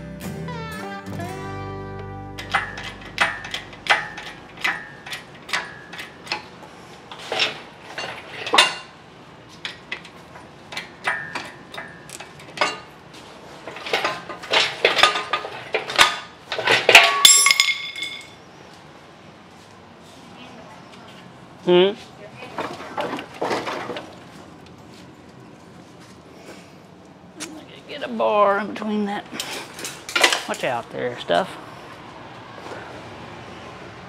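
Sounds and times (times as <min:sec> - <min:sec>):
loud clattering metal clang: 0:02.4 - 0:06.5, 0:13.7 - 0:18.4
metal clinks and clanks: 0:02.4 - 0:06.5, 0:13.6 - 0:18.4.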